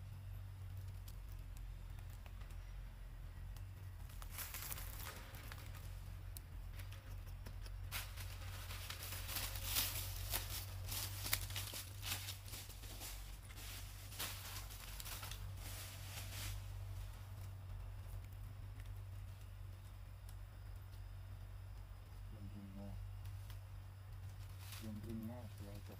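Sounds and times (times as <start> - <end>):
steady low hum: 0.0 - 25.9
dry leaves crackling and rustling: 3.8 - 6.3, 7.8 - 20.4, 22.3 - 25.9.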